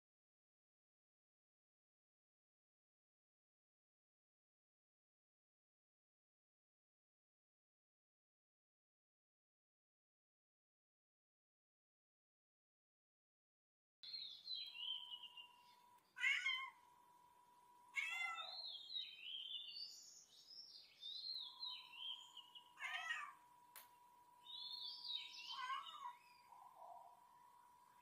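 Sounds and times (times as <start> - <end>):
cat meowing: 16.2 - 16.8, 17.9 - 18.6, 22.8 - 23.4, 25.4 - 26.2
high chirping notes: 21.2 - 23.4.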